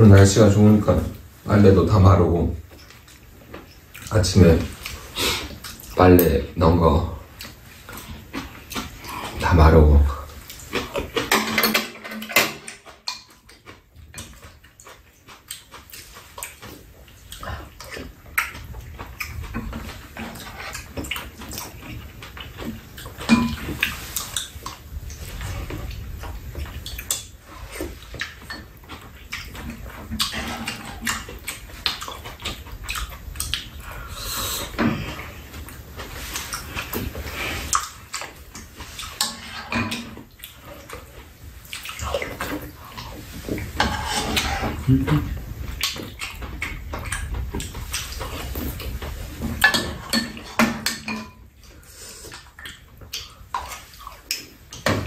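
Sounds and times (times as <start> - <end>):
people chewing and slurping: 2.6 - 55.0
utensils clicking against bowls: 11.2 - 13.5.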